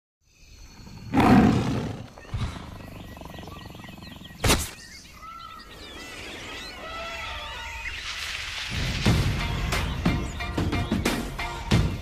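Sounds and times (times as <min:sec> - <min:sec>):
high twittering calls: 0:00.3 - 0:08.7
big cat roaring: 0:01.1 - 0:04.4.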